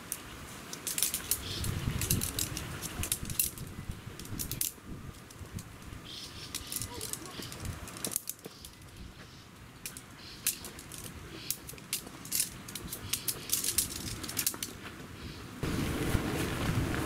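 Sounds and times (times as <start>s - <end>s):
wind noise on microphone: 0.0s - 8.1s, 15.2s - 17.0s
tent pole sections clicking: 0.0s - 15.1s.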